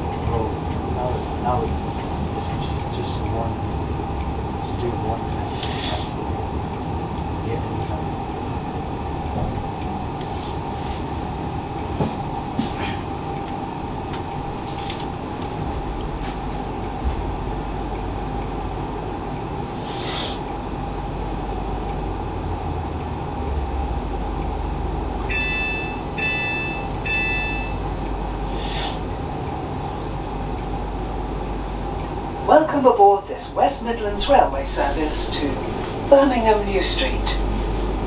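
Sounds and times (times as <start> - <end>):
train equipment hum: 0.0 - 38.0
air hisses: 5.5 - 6.2, 19.8 - 20.4, 28.5 - 29.0
low rumble: 6.2 - 19.8, 20.5 - 38.0
short electronic beeps: 25.3 - 28.0.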